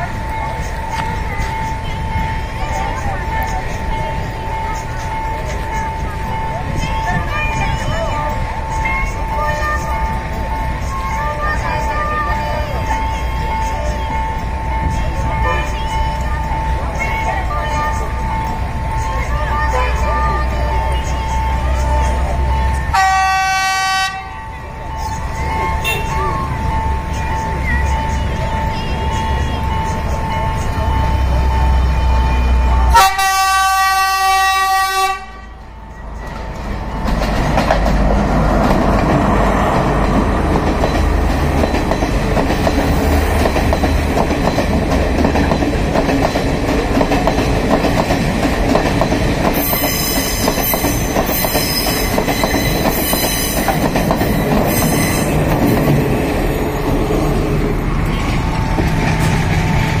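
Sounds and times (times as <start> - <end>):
wheel and rail clatter: 0.0 - 22.9, 35.3 - 60.0
crossing warning bell ringing: 0.0 - 60.0
train horn blast: 22.9 - 24.4, 25.7 - 26.2, 32.6 - 35.6.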